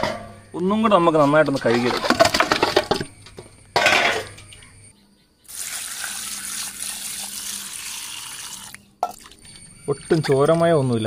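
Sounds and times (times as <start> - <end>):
tap water pouring into metal basin: 5.5 - 10.8.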